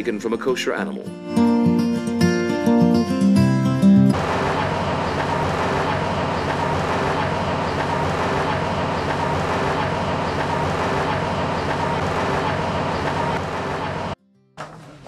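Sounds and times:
workshop machinery running: 4.1s - 14.2s.

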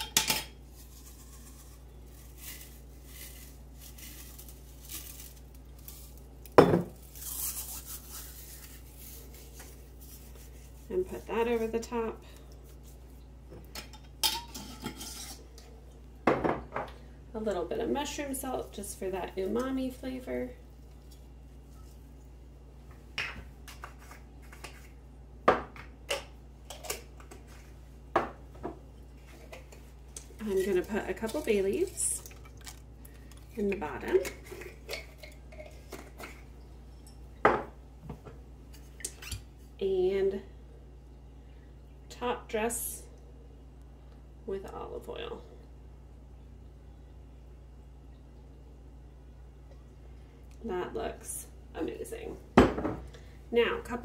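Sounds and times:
faint low hum: 0.0s - 54.0s
dried herbs rustling: 0.6s - 11.8s, 29.2s - 33.8s
dried herbs rattling in jar: 0.8s - 9.4s.

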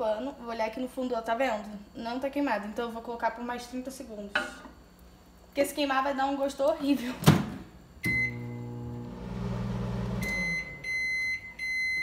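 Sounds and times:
microwave oven humming: 7.9s - 12.0s
microwave beeps: 8.0s - 12.0s.

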